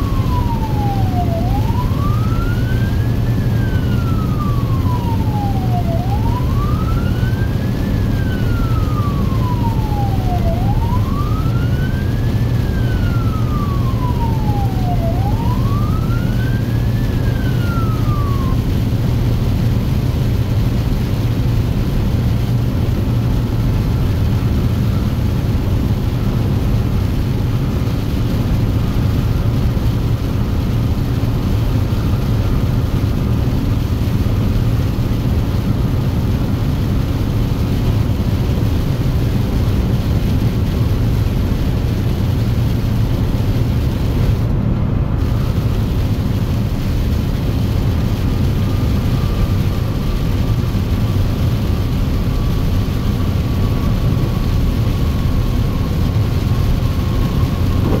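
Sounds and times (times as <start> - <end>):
emergency siren wailing: 0.0 - 58.0
engine and road drone: 0.0 - 58.0.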